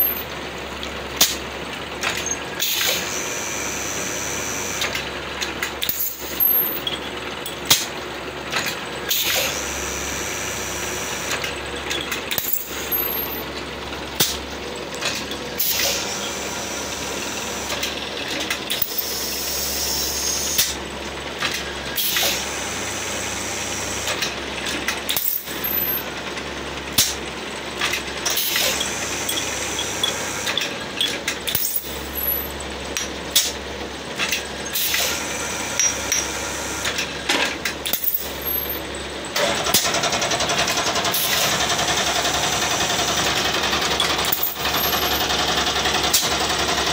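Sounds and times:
blow-molding machine running: 0:00.0 - 0:46.9
machine hissing: 0:02.6 - 0:04.9, 0:09.1 - 0:11.7, 0:18.8 - 0:20.8
metallic clanks and clicks: 0:04.8 - 0:07.9, 0:11.3 - 0:16.0, 0:35.8 - 0:40.1, 0:44.0 - 0:45.3.

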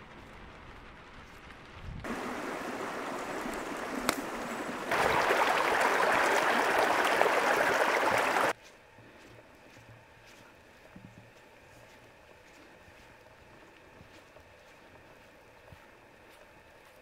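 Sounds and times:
creek water rushing over rocks: 0:02.1 - 0:08.5
water filling a bottle: 0:02.1 - 0:08.5.

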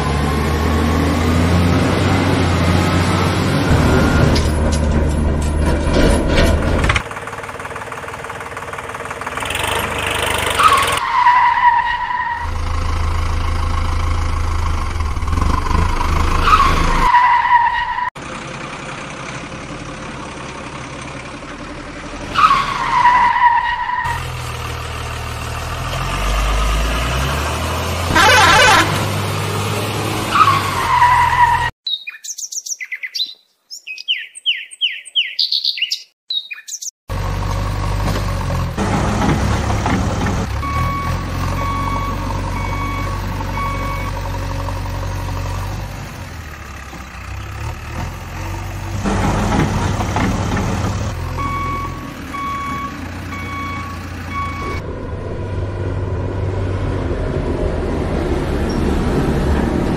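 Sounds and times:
truck engine running: 0:00.0 - 0:11.0, 0:12.4 - 0:17.1, 0:18.1 - 0:30.3, 0:37.1 - 0:59.9
reversing alarm beeping: 0:40.6 - 0:44.2, 0:51.3 - 0:54.8.

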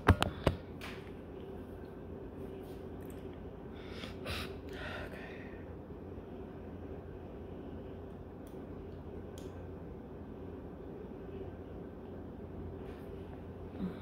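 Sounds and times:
woman breathing heavily: 0:03.7 - 0:05.7.

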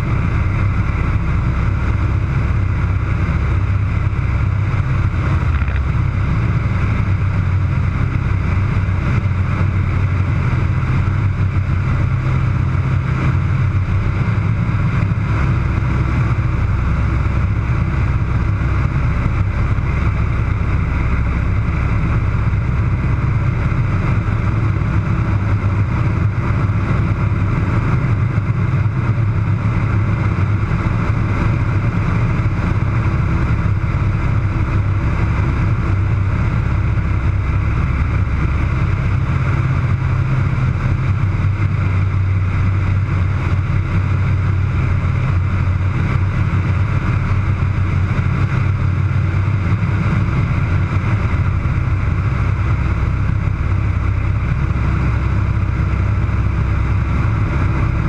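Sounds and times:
aircraft engine droning: 0:00.0 - 0:58.0.

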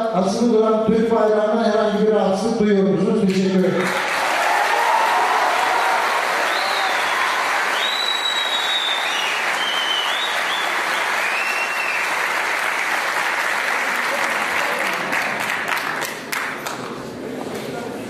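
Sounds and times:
audience applauding: 0:03.8 - 0:17.0
high sliding whistles: 0:06.4 - 0:12.1.

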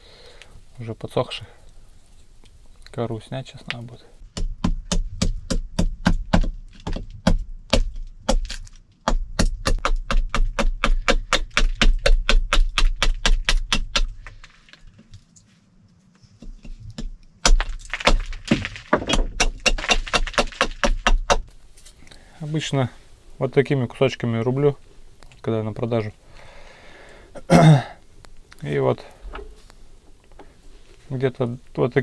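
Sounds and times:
knife chopping against wood: 0:04.4 - 0:14.1.

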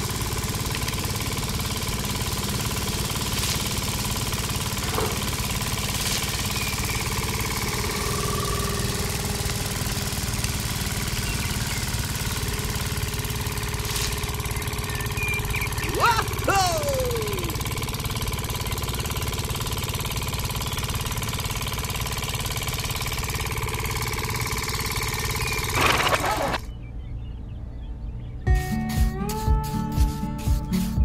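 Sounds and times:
small motor running: 0:00.0 - 0:26.8.

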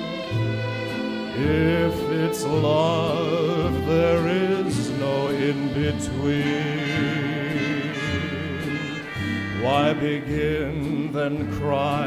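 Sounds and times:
swing dance band music: 0:00.0 - 0:12.0.

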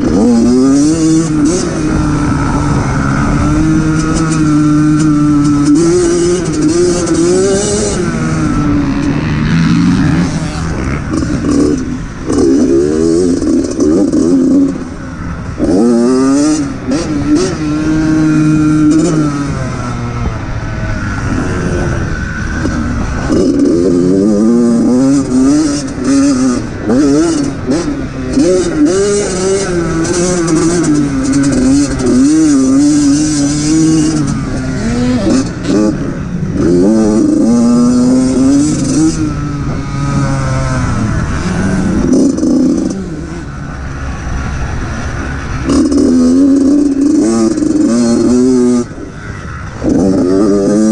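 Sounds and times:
dirt bike engine revving: 0:00.0 - 0:50.9.

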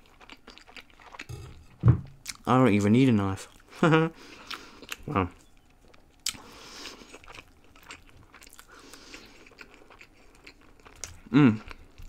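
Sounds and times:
person biting and chewing food: 0:05.9 - 0:12.0.

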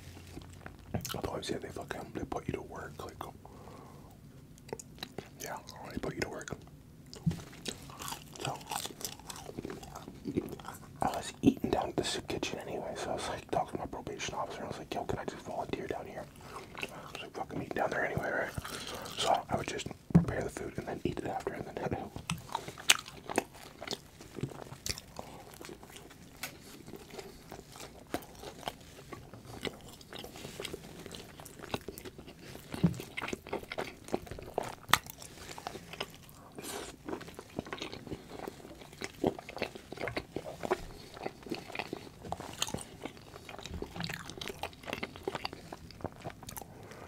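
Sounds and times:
chewing and biting food: 0:07.1 - 0:11.8, 0:16.2 - 0:17.3, 0:18.2 - 0:47.0.

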